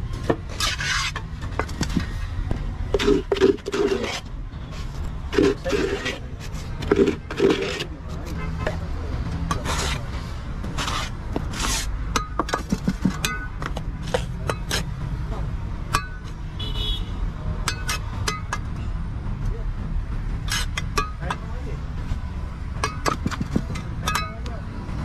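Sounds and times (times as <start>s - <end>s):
trowel scraping concrete: 0.3s - 2.2s, 2.8s - 8.4s, 9.5s - 14.9s, 20.4s - 21.4s.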